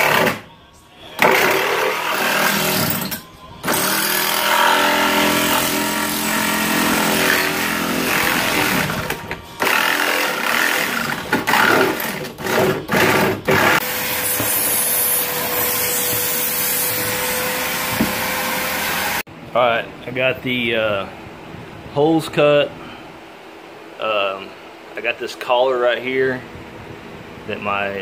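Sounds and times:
power saw cutting: 0:01.2 - 0:19.3
vacuum humming: 0:03.6 - 0:19.2.

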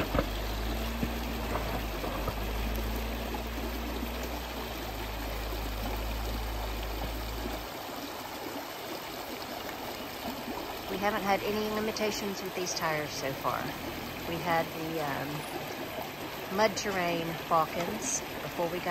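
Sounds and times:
car engine hum: 0:00.0 - 0:07.8, 0:10.5 - 0:18.9
creek rushing and splashing: 0:00.0 - 0:18.9.

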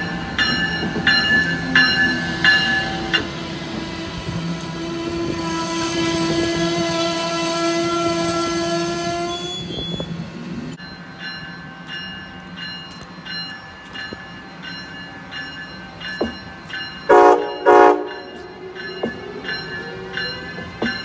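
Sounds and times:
passing train: 0:00.0 - 0:21.0
locomotive horn chord: 0:04.0 - 0:09.4, 0:17.1 - 0:18.8.

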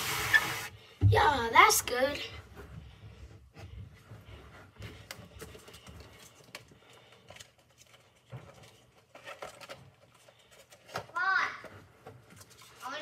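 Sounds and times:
faint clicks and rustling: 0:02.6 - 0:13.0.

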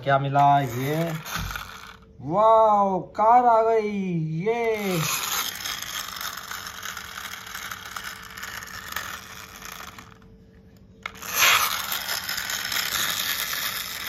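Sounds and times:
toy car gearbox rattle: 0:00.0 - 0:02.0, 0:04.7 - 0:10.2, 0:11.0 - 0:14.0
toy car wheels scraping on stone: 0:00.0 - 0:02.0, 0:04.7 - 0:10.3, 0:11.0 - 0:14.0.

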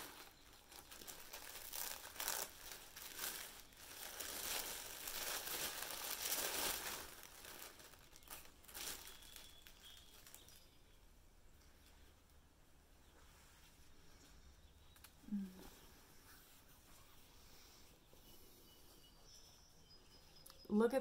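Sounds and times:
paper wrapping rustling: 0:00.0 - 0:10.9.

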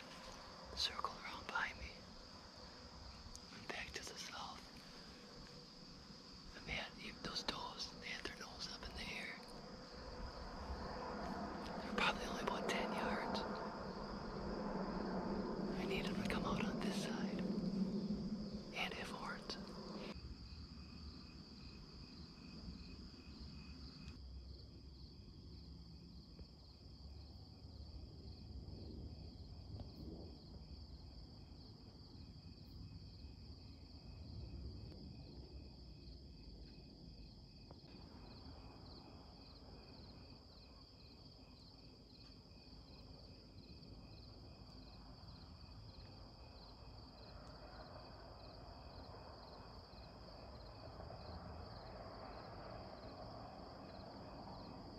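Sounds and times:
crickets chirping: 0:00.0 - 0:54.9
low rumble: 0:04.4 - 0:20.4.

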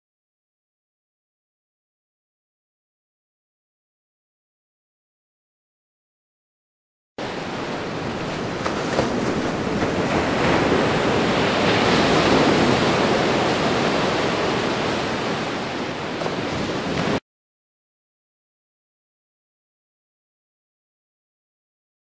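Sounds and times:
ocean waves breaking on beach: 0:07.2 - 0:17.2.

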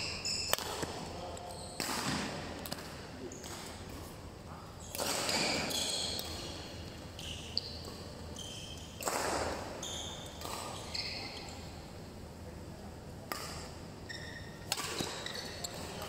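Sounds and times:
shoes squeaking on court floor: 0:00.0 - 0:02.0, 0:04.8 - 0:11.8, 0:13.4 - 0:16.0.

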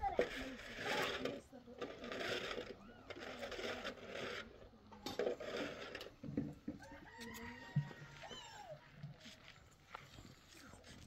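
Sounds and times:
rooster crowing: 0:06.8 - 0:08.8.

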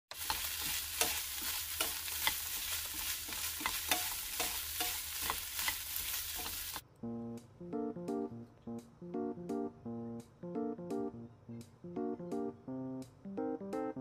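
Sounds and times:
meat sizzling in a frying pan: 0:00.1 - 0:06.8
chopsticks clicking against pan: 0:00.2 - 0:06.6.

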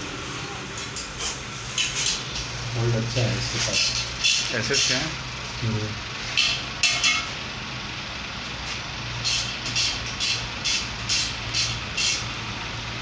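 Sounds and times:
ratchet wrench clicking: 0:03.8 - 0:05.0, 0:09.1 - 0:12.3.

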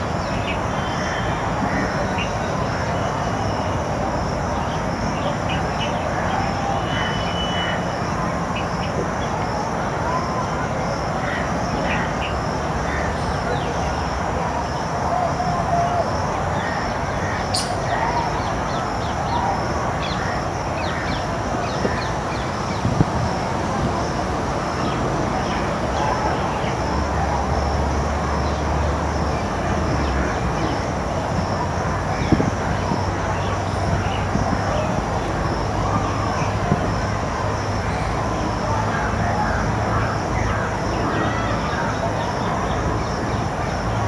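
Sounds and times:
faint far-off voices: 0:00.0 - 0:44.0
birds chirping: 0:11.4 - 0:27.1.

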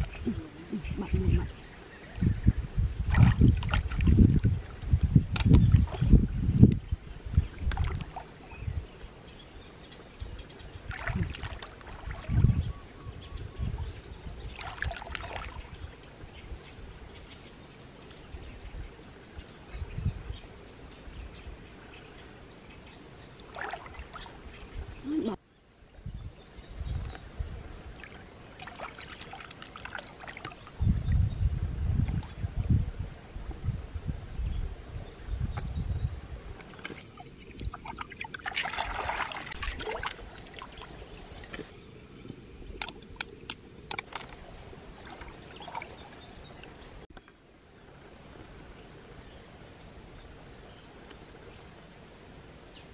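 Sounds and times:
water sloshing and splashing: 0:03.0 - 0:06.4, 0:07.3 - 0:08.6, 0:10.8 - 0:12.7, 0:14.4 - 0:15.8, 0:23.4 - 0:24.6, 0:27.9 - 0:30.8, 0:36.4 - 0:46.8.

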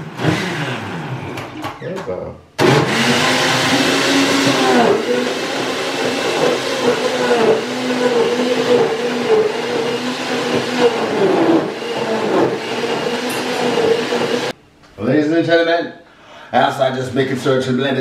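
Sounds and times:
electric blender running: 0:00.0 - 0:01.6, 0:02.6 - 0:14.6.

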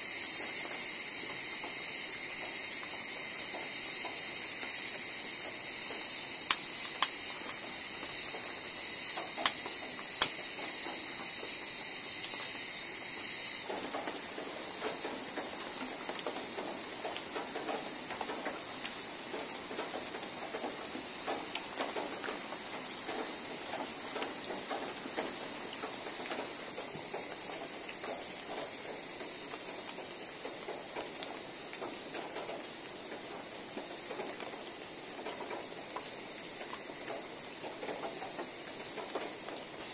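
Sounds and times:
steady high-pitched hiss: 0:00.0 - 0:39.9
campfire crackling: 0:04.5 - 0:17.8
sharp clicks: 0:06.5 - 0:07.7, 0:09.2 - 0:10.4.

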